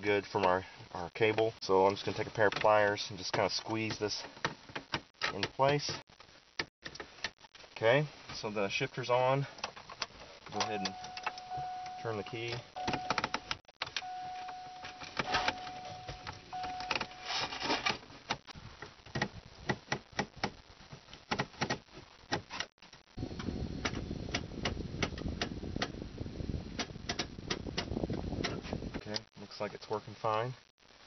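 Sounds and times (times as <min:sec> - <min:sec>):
low steady noise: 0:00.0 - 0:19.8
dashboard warning chime: 0:10.6 - 0:17.4.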